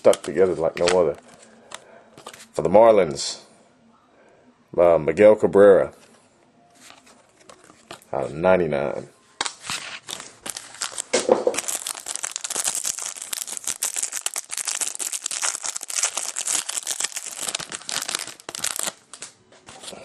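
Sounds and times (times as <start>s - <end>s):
foil wrapper crinkling: 9.7s - 19.4s.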